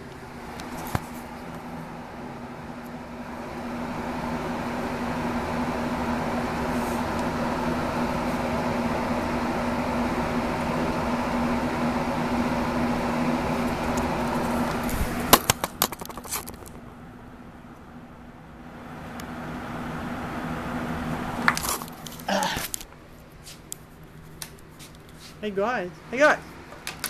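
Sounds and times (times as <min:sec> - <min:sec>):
steady mechanical hum: 0:00.0 - 0:27.0
sharp clicks and knocks: 0:15.3 - 0:16.8.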